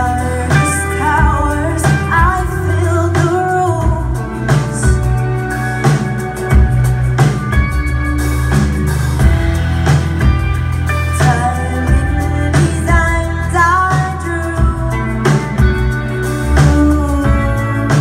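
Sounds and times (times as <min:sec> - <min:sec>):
woman singing: 0:00.0 - 0:05.4, 0:10.9 - 0:18.0
live rock band playing: 0:00.0 - 0:18.0.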